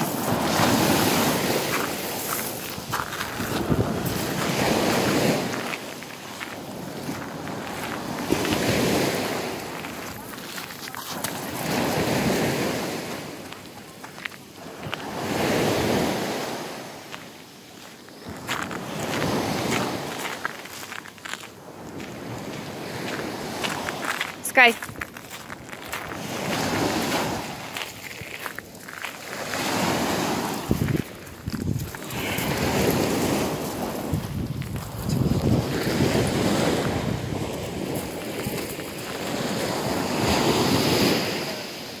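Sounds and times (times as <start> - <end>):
wind on microphone: 0.0 - 10.3, 29.6 - 41.4
small waves on pebble beach: 0.0 - 42.0.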